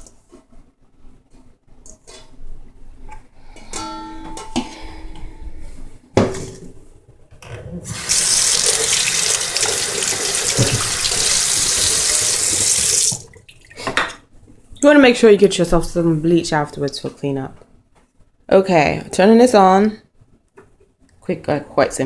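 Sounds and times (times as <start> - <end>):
metal kitchenware clanking: 3.6 - 5.4
water running into metal bowl: 7.9 - 13.7.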